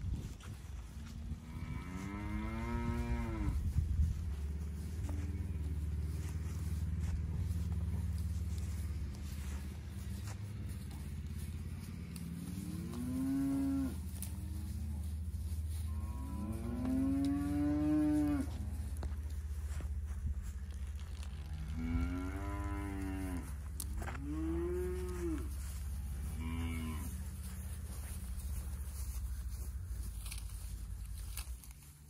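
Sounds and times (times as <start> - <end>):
steady low rumble: 0.0 - 32.0
cattle mooing: 12.2 - 14.8, 15.9 - 19.1, 21.4 - 27.2.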